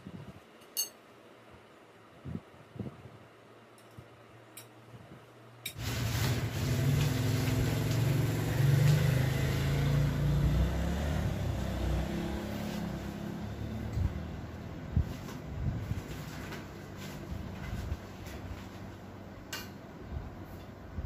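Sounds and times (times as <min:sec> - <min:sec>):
low engine-like rumble: 0:05.8 - 0:19.3.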